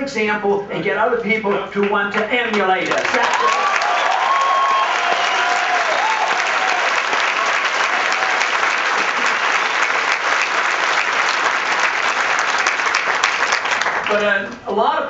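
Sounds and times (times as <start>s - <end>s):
audience applauding: 2.5s - 14.2s
people cheering: 2.9s - 13.8s.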